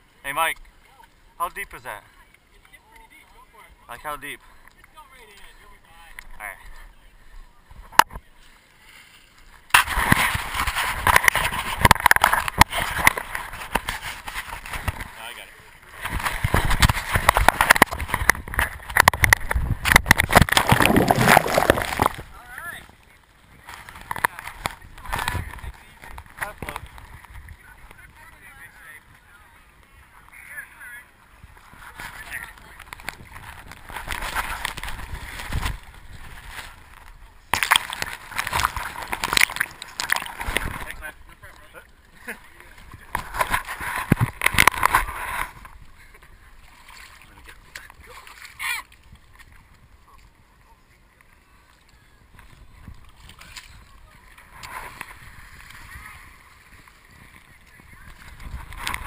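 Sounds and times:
camera handling knocks and scrapes: 9.7 - 15.1
muffled rustling and knocking: 16.0 - 22.3.

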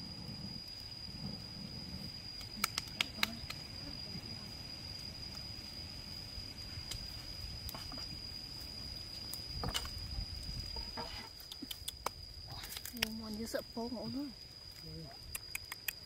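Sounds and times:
high-pitched insect drone: 0.0 - 16.0
sharp clicks: 2.4 - 3.6.

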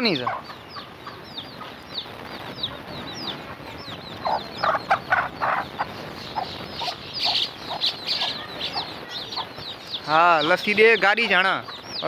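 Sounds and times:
chicks peeping: 0.0 - 12.0
hen clucking: 0.0 - 12.0.

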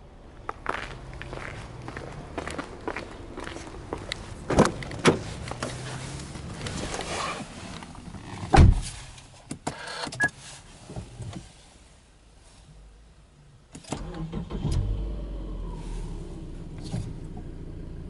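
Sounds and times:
car door shutting: 4.5 - 5.8, 8.2 - 9.0.

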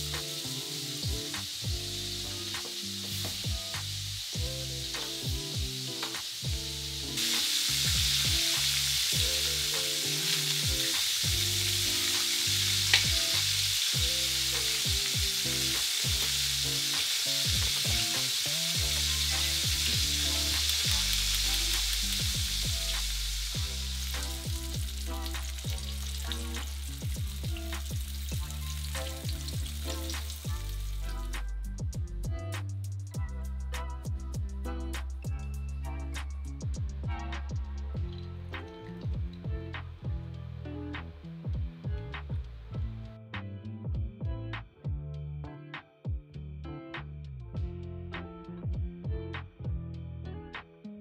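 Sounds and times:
chicken sizzling in oil: 0.0 - 31.6
music with bass and light beat: 0.0 - 51.0.

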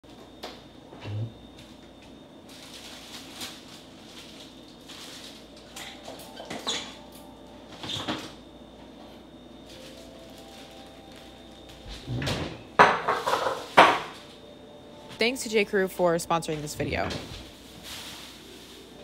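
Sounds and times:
plastic bags rustling: 2.5 - 7.1, 9.6 - 12.1, 16.6 - 19.0
items knocking against shelves: 11.9 - 14.2.

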